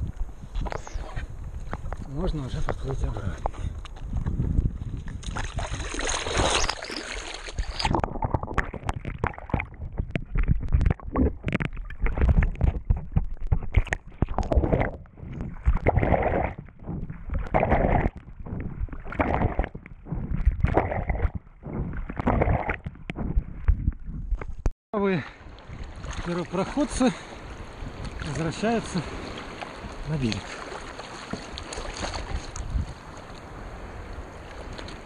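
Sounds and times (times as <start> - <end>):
gurgling rumble: 2.8 - 24.4
water splashing against surfboard: 5.1 - 24.6, 25.6 - 35.0.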